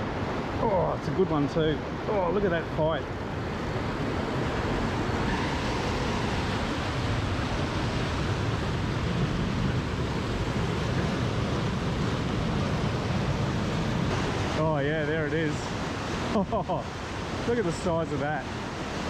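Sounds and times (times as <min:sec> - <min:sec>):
moving water: 0:00.0 - 0:19.0.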